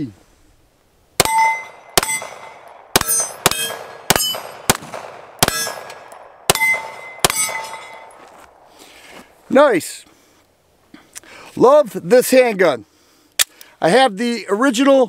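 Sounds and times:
steel targets ringing: 1.2 - 4.6, 5.4 - 8.2
pistol shots: 1.2 - 8.2.

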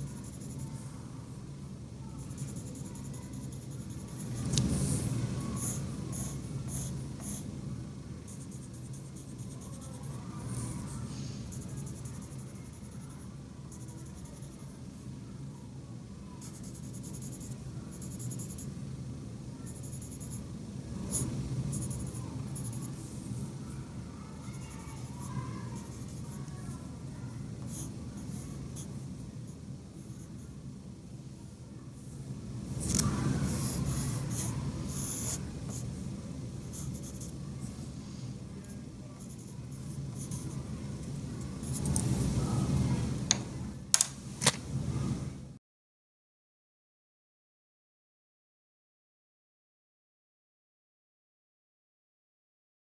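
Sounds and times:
pencil sketching on paper: 2.2 - 7.4, 24.5 - 26.5, 33.3 - 35.9, 39.2 - 40.6.

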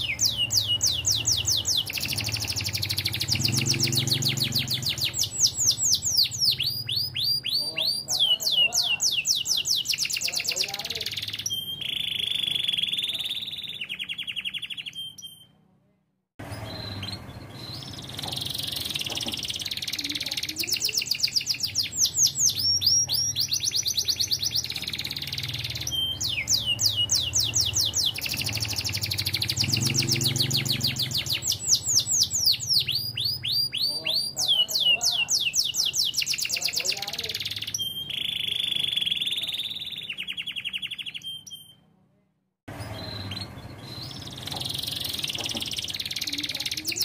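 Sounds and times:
canary singing: 0.0 - 15.6, 16.4 - 41.9, 42.7 - 47.0.

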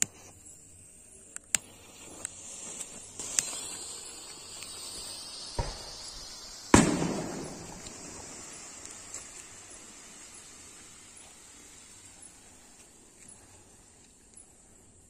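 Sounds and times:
smoke fireworks hissing: 0.0 - 15.0
thump: 5.6 - 6.0.

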